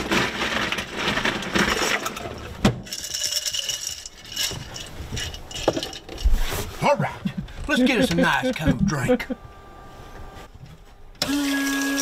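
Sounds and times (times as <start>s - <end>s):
ice cubes rattling and clinking: 0.0s - 6.3s.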